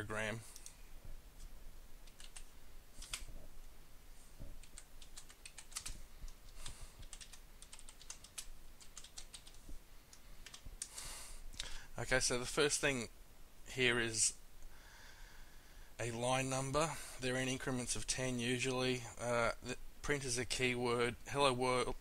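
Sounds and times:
computer keyboard typing: 0:02.0 - 0:03.3, 0:04.6 - 0:09.6, 0:10.4 - 0:11.0.

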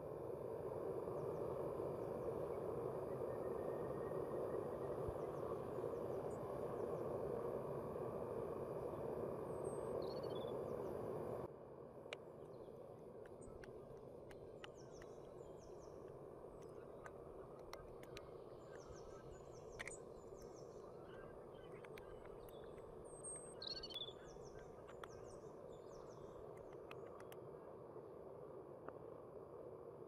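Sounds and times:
light ticks: 0:12.1 - 0:15.3, 0:16.0 - 0:20.6, 0:21.6 - 0:25.3, 0:26.5 - 0:27.4
high bird chirps: 0:22.5 - 0:24.6.

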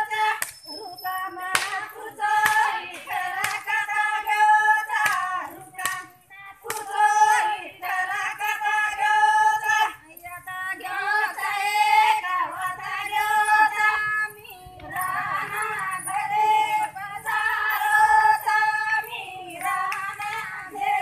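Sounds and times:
women singing devotional song: 0:00.0 - 0:21.0
hand claps: 0:01.5 - 0:03.8, 0:04.9 - 0:06.1, 0:06.7 - 0:07.0.

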